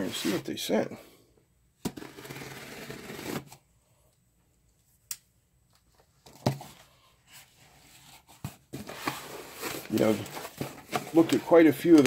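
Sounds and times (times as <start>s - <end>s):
cardboard rustling and knocking: 8.0s - 12.0s.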